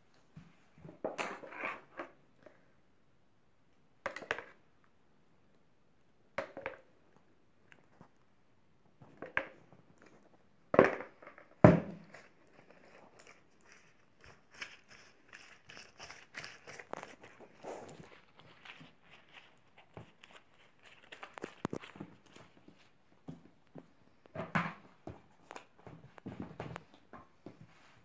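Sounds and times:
pastry sheets crinkling and crackling: 12.1s - 23.2s.

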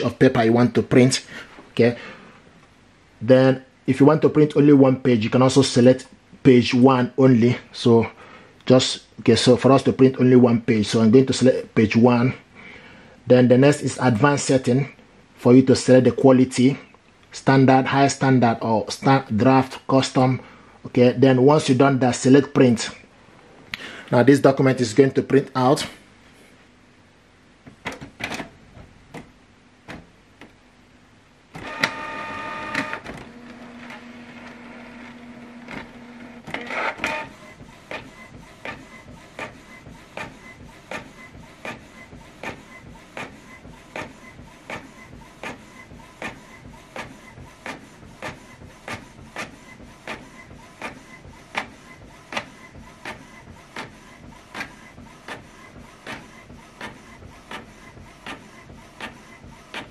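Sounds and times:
inkjet printer printing: 27.7s - 30.5s, 31.5s - 59.9s
printer clicks: 31.6s - 41.8s, 52.3s - 59.9s.

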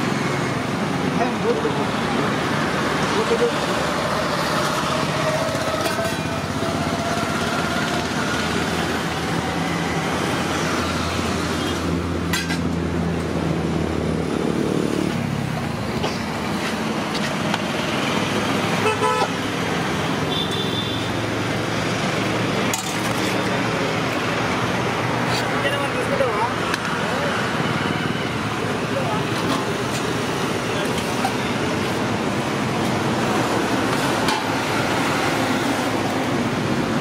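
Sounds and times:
roadside traffic noise: 0.0s - 37.0s
car horns honking: 18.8s - 19.4s, 20.2s - 21.2s.

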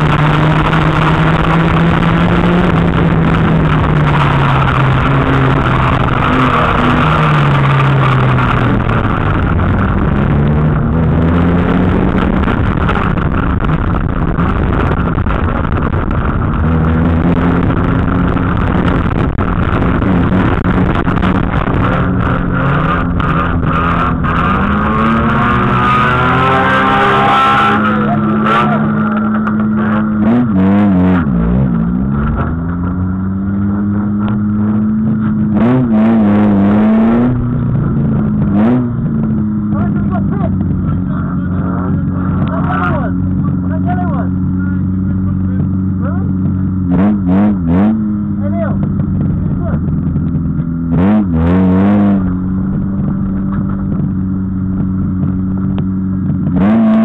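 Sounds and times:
car engine revving: 0.0s - 57.0s
car knocks and rattles: 48.8s - 51.2s, 52.3s - 56.8s.

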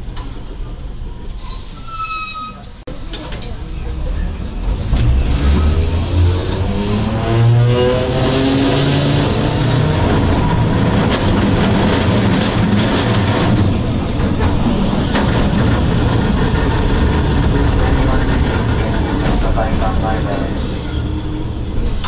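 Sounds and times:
streetcar running rumble: 0.0s - 22.0s
streetcar motor whine: 3.0s - 22.0s
wheels clacking on rails: 8.2s - 22.0s.

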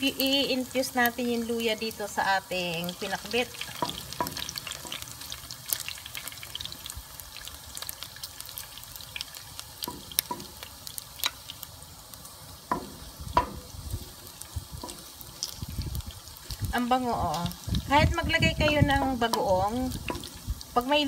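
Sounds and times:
pork and ginger sizzling in a wok: 0.0s - 21.0s
spoon knocking against pan: 3.8s - 5.0s, 9.9s - 10.6s, 12.7s - 13.7s, 18.6s - 20.4s
wooden spoon stirring: 12.7s - 20.7s.

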